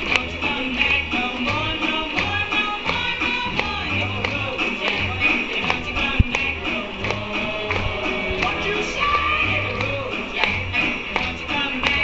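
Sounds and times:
dance music with steady beat: 0.0 - 12.0.

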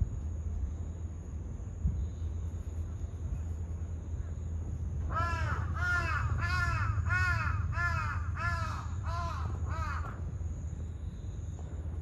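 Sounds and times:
crow cawing: 5.1 - 10.2.

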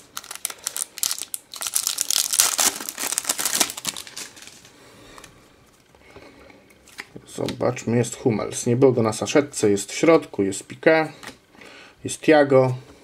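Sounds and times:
foil packet tearing and crinkling: 0.0 - 4.7.

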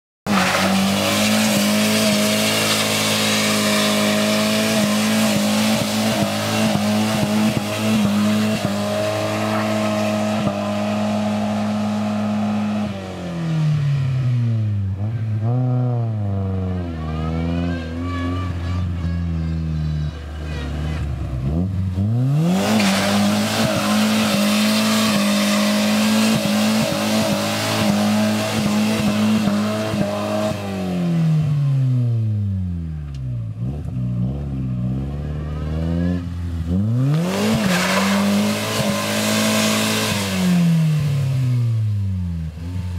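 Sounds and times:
tyres squealing on asphalt: 0.2 - 11.5, 16.8 - 30.3, 37.0 - 40.5
engine at high revs: 0.3 - 18.6, 20.5 - 32.5, 33.5 - 42.9.

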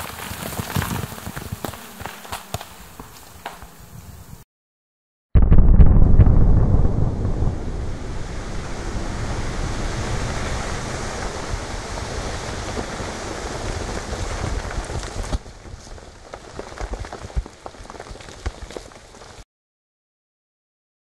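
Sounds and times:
ice and water raining down: 8.0 - 19.4.

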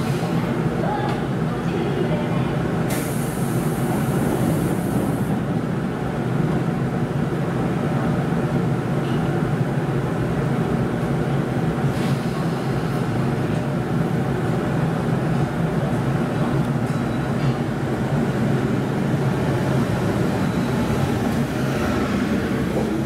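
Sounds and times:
electric train low hum: 2.4 - 23.0
air hiss: 2.9 - 5.2.

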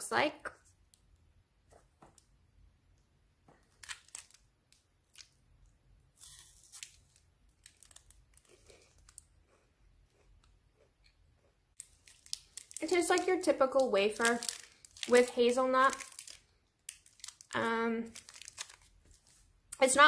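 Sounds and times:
small crackles: 3.0 - 19.9
foil wrapper crinkling: 3.6 - 5.4, 6.2 - 9.3, 11.8 - 19.9.

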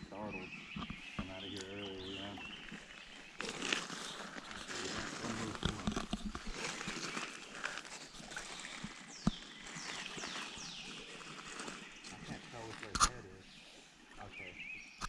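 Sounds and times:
wading steps through shallow water: 0.3 - 14.3
crunching on gravel: 1.2 - 13.2.

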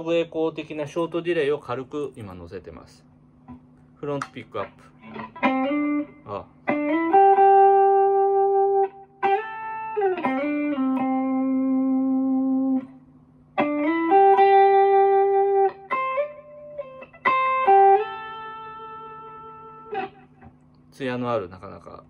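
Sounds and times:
clean electric guitar: 3.4 - 21.0.

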